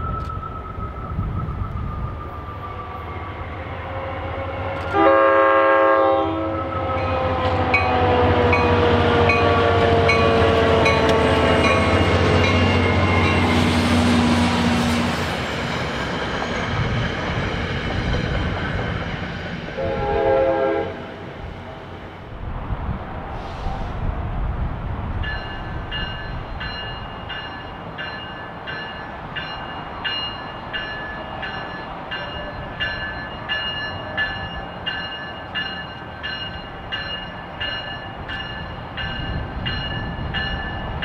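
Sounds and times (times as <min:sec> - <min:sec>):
diesel locomotive drone: 0:00.0 - 0:41.0
train horn: 0:03.7 - 0:13.5, 0:19.8 - 0:21.3.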